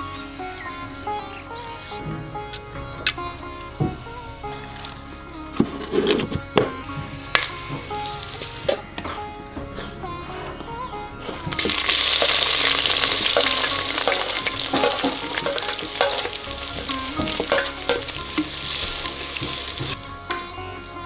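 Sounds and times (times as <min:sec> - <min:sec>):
food sizzling in hot oil: 0:11.6 - 0:20.0.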